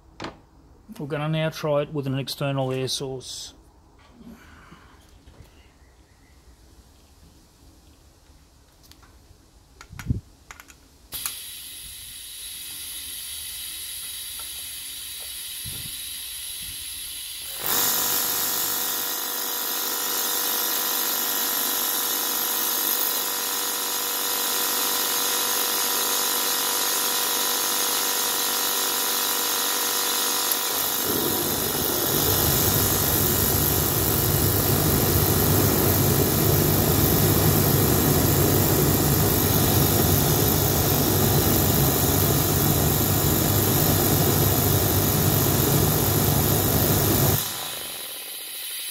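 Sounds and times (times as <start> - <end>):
oil burner whine: 11.1 - 19.7, 20.7 - 48.9
compressed air hissing: 11.2 - 18.0, 30.5 - 41.9, 46.8 - 48.9.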